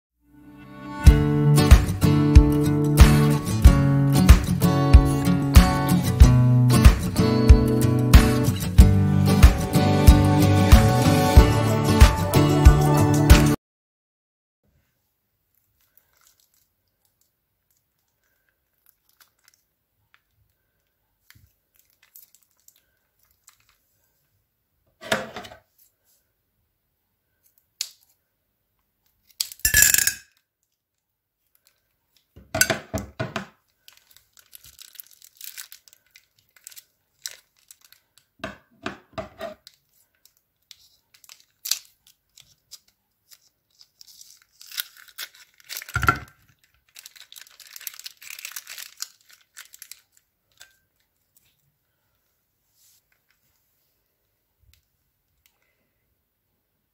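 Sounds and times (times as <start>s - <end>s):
cellophane crinkling: 15.5s - 24.2s, 31.4s - 32.4s, 33.6s - 38.4s, 39.5s - 52.0s
scissors cutting plastic: 40.6s - 50.8s.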